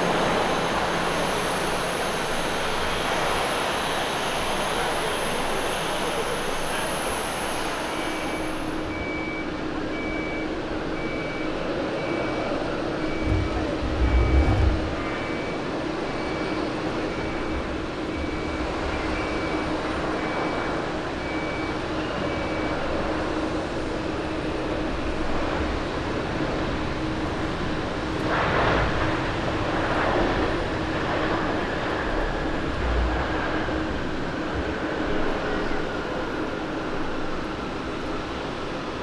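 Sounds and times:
jet engine rush: 0:12.6 - 0:16.9
low hum: 0:13.0 - 0:15.4.

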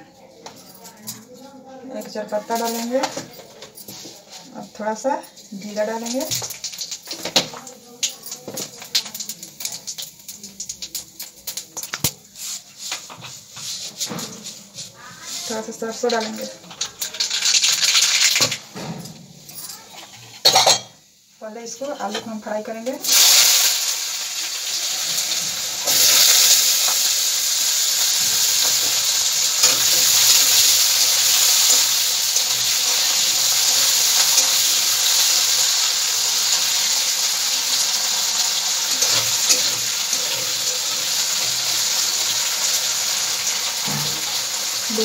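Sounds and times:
potatoes sizzling in hot oil: 0:02.0 - 0:03.2, 0:04.5 - 0:18.8, 0:19.6 - 0:45.0.

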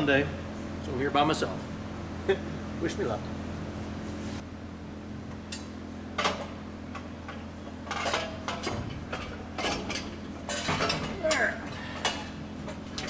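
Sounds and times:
steady low hum: 0:00.0 - 0:13.0
metal pipes clinking and knocking: 0:05.5 - 0:13.0.

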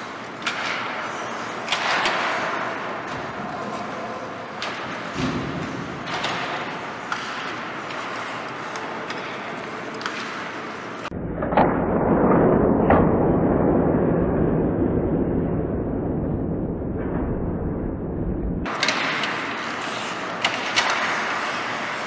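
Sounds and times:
skates scraping ice: 0:00.0 - 0:11.1, 0:18.7 - 0:22.0
hockey sticks and puck clacking: 0:00.0 - 0:11.8, 0:18.6 - 0:22.0.

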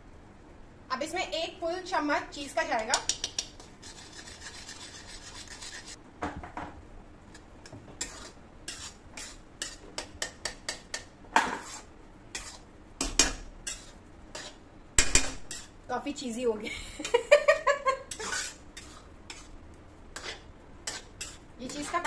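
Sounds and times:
spoon scraping metal pan: 0:02.9 - 0:06.0, 0:07.3 - 0:15.8, 0:18.1 - 0:19.6, 0:20.2 - 0:22.0.

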